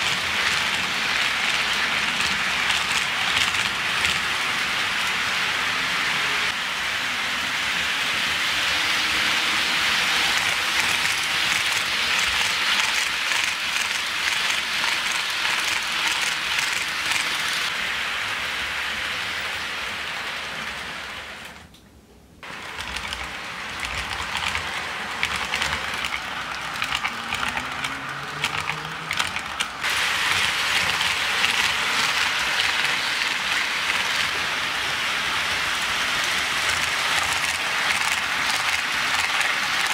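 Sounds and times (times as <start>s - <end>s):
model train wheels hissing: 0.0s - 21.6s, 22.4s - 39.9s
clicking over track joints: 22.5s - 34.4s.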